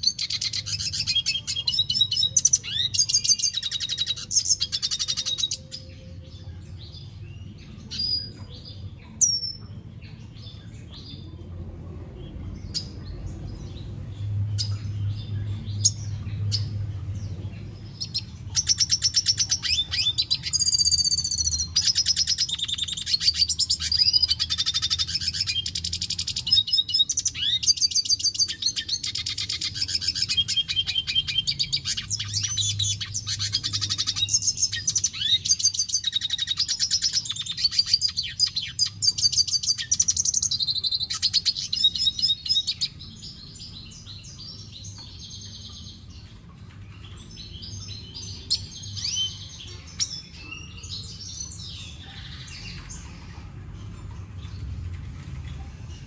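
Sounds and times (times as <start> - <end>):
bird twittering song: 0.0 - 56.0
steady low hum: 6.0 - 18.6.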